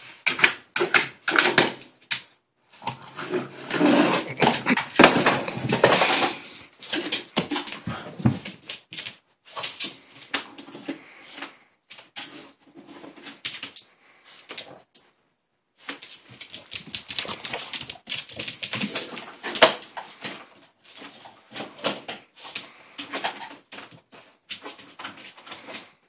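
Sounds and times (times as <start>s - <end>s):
dog claws skittering on tile floor: 1.3s - 12.4s, 15.8s - 25.9s
dog vocalizing: 3.9s - 5.7s.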